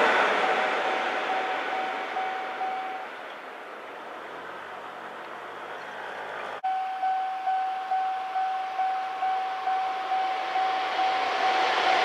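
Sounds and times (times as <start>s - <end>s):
level crossing warning bell: 0.0s - 3.2s, 6.6s - 12.0s
approaching train: 0.0s - 12.0s.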